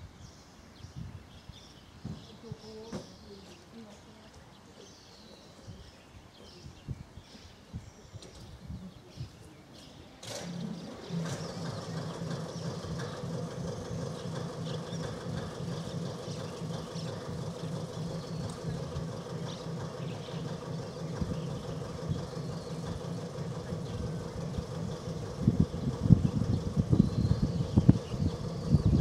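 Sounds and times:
diesel engine idling: 0:10.3 - 0:29.0.

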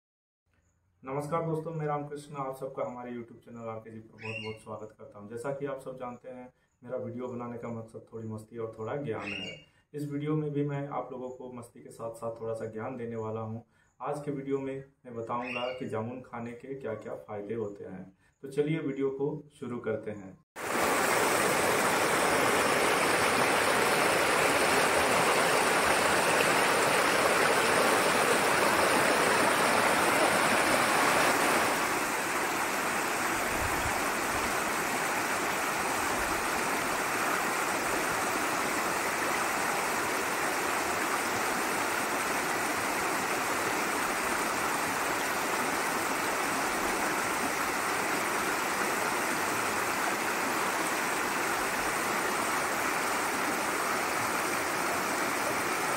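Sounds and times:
river rushing over rocks: 0:20.6 - 0:55.9.

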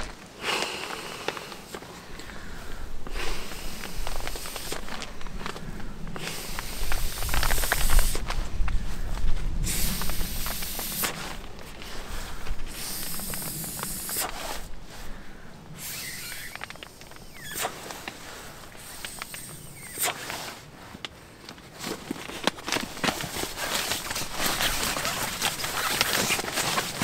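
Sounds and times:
air hissing into sleeping pad: 0:00.0 - 0:08.5, 0:09.5 - 0:21.0, 0:22.7 - 0:27.0
nylon rustling: 0:03.4 - 0:27.0
small clicks: 0:18.8 - 0:20.4.

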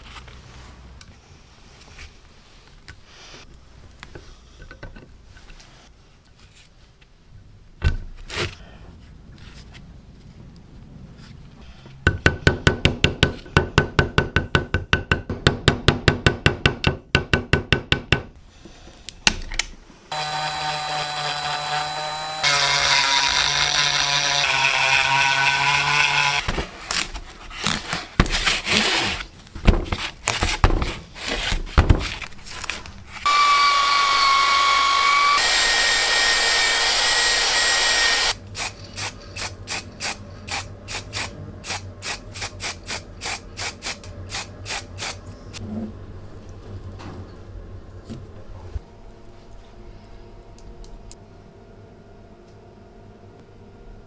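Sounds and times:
small cordless drill running: 0:20.1 - 0:26.4, 0:33.2 - 0:38.4.

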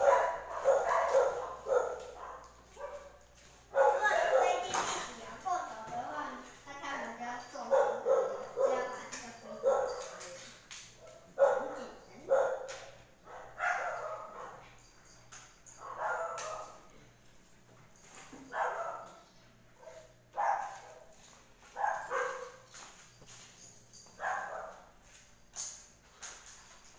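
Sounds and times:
puppy barking: 0:00.0 - 0:04.8, 0:07.6 - 0:14.7, 0:15.7 - 0:16.9, 0:18.5 - 0:19.2, 0:19.8 - 0:21.1, 0:21.7 - 0:22.7, 0:24.2 - 0:24.9.

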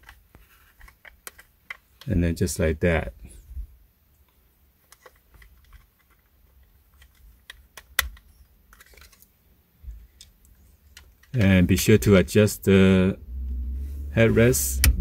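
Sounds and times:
plastic clicks and taps: 0:00.8 - 0:02.1, 0:04.9 - 0:09.1.

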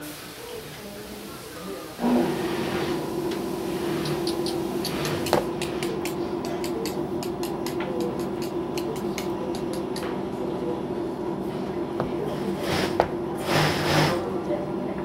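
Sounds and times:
electric motor humming: 0:02.0 - 0:10.0.

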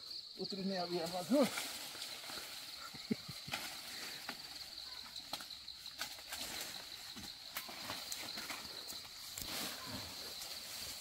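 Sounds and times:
branches being chopped: 0:05.2 - 0:09.8.

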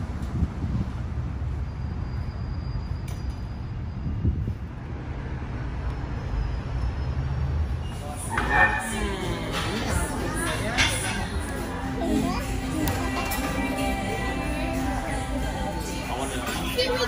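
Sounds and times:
wind on microphone: 0:00.0 - 0:01.3, 0:03.9 - 0:04.9
street traffic rumble: 0:00.0 - 0:17.0
voices: 0:07.8 - 0:17.0
music: 0:08.8 - 0:17.0.

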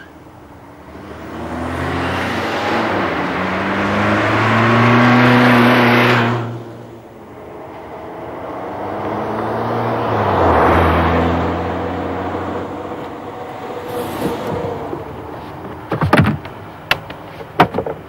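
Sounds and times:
car engine hum: 0:00.0 - 0:18.0
road noise: 0:00.0 - 0:18.0
clicks and knocks: 0:14.2 - 0:18.0.

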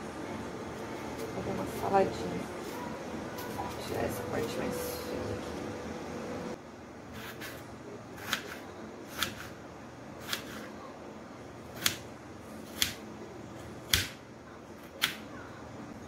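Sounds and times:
knife slicing tomato: 0:07.1 - 0:07.6, 0:08.2 - 0:09.6, 0:10.2 - 0:10.7, 0:11.7 - 0:12.0, 0:12.6 - 0:13.0.

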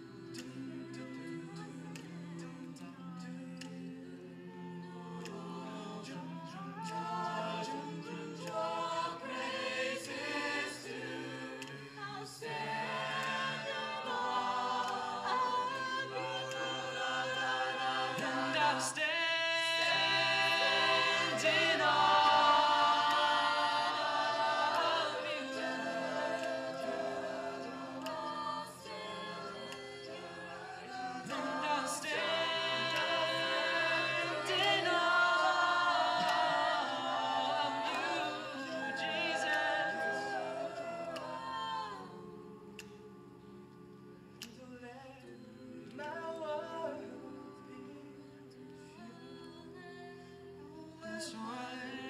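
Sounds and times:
a cappella group singing: 0:00.0 - 0:52.0.

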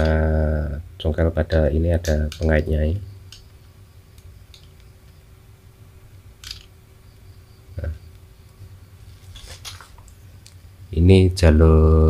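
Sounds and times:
low steady hum: 0:00.0 - 0:12.0
small tool clicks: 0:06.4 - 0:06.7.

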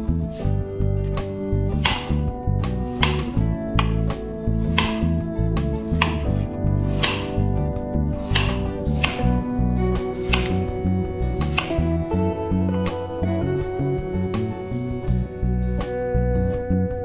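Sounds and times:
knife slicing potato: 0:01.7 - 0:09.4, 0:10.0 - 0:10.7, 0:11.3 - 0:11.9
knife tapping wooden cutting board: 0:01.8 - 0:02.2, 0:03.0 - 0:04.0, 0:04.7 - 0:05.1, 0:05.9 - 0:06.4, 0:07.0 - 0:07.4, 0:08.3 - 0:09.3, 0:10.3 - 0:10.6, 0:11.5 - 0:11.8.

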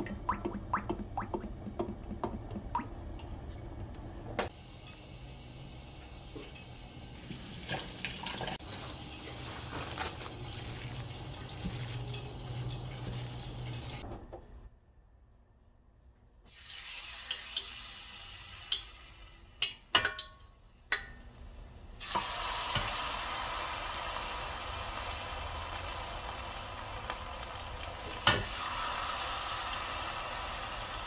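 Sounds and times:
food frying in hot oil: 0:04.5 - 0:14.0, 0:16.5 - 0:20.2, 0:22.0 - 0:31.0.

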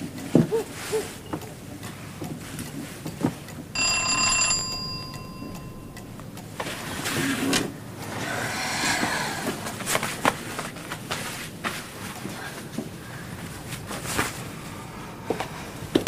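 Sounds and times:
bell-like chime: 0:03.8 - 0:06.3
rustling movement: 0:09.5 - 0:14.8.

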